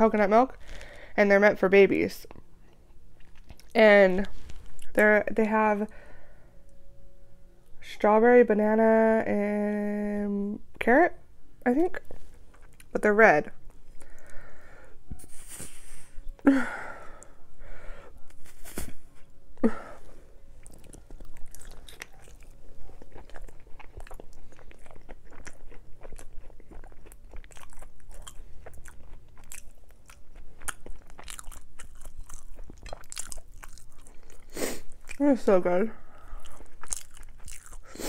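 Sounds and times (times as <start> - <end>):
person chewing with crunches: 2.8 - 5.0, 12.1 - 12.9, 20.6 - 38.0.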